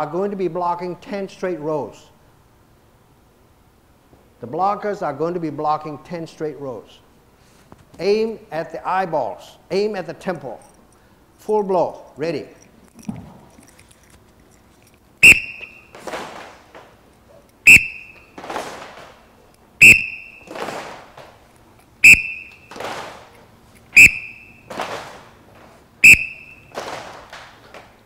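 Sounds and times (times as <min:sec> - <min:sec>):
fighting sticks clattering: 0:12.4 - 0:28.0
whistle blasts: 0:15.2 - 0:16.0, 0:17.6 - 0:18.4, 0:19.8 - 0:20.6, 0:22.0 - 0:22.8, 0:24.0 - 0:24.7, 0:26.0 - 0:26.8.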